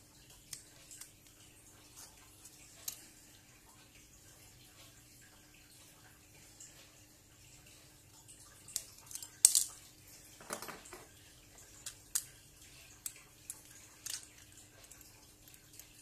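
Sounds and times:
phone parts clicking and tapping: 0:10.4 - 0:11.1.

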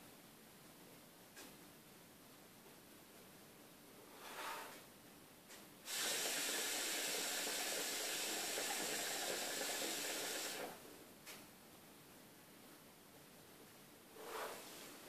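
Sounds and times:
air hissing through hookah hose: 0:05.8 - 0:10.8.

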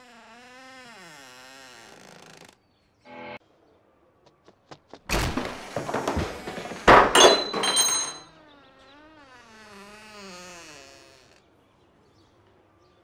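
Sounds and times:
heavy door thuds and knocks: 0:05.1 - 0:08.2
door hinge creaking: 0:05.2 - 0:08.2
metallic jingle: 0:07.1 - 0:08.3.

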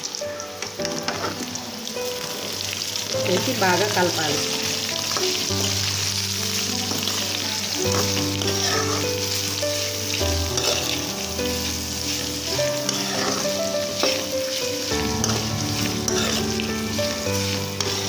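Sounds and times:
vegetables sizzling in hot oil: 0:00.0 - 0:18.0
metal spoon scraping and tapping pan: 0:10.6 - 0:11.0, 0:12.2 - 0:14.4, 0:15.2 - 0:16.7.

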